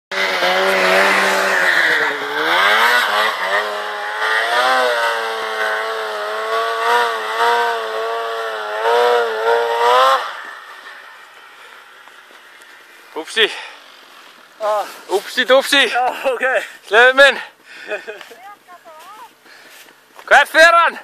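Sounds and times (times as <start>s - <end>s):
snowmobile engine revving: 0.1s - 17.2s.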